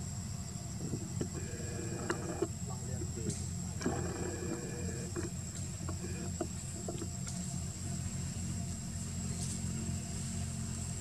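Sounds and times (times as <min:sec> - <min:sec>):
vehicle engine rumbling: 0:00.0 - 0:11.0
thin high whine: 0:00.8 - 0:10.5.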